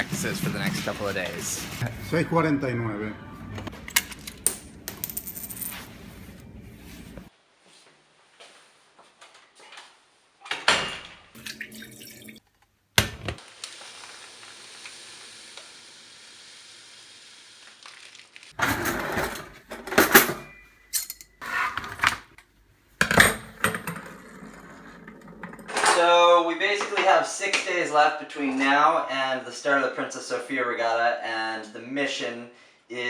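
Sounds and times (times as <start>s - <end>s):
pans and utensils clattering: 18.6s - 22.2s.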